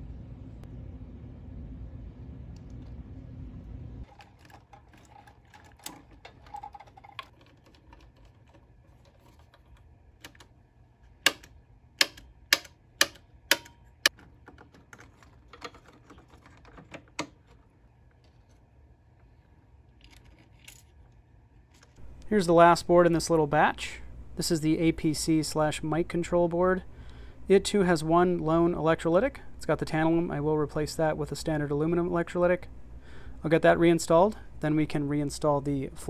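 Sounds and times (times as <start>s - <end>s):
low rumble: 0.0s - 4.1s
pushbutton switch clicks: 11.2s - 13.8s.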